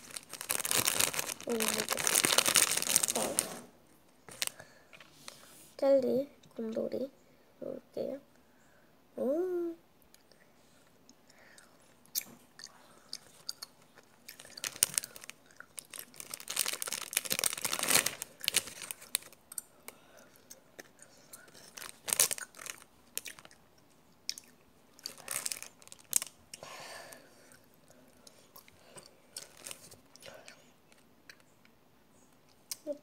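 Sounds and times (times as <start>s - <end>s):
plastic candy packets crackling: 0.0s - 3.7s, 4.3s - 5.0s, 13.2s - 23.6s, 24.4s - 26.4s, 29.3s - 31.5s
chewing gummy candy: 11.6s - 26.4s.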